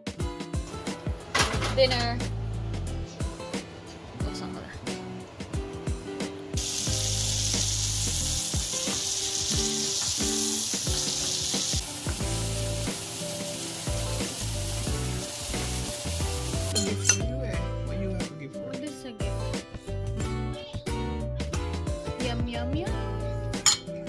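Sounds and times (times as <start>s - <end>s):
background music: 0.0s - 24.0s
food sizzling in a pan: 6.6s - 16.8s.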